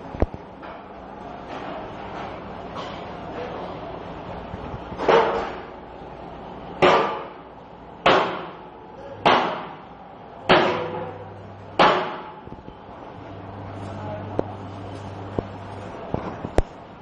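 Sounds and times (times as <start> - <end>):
heavy blows on metal: 6.8 - 12.4.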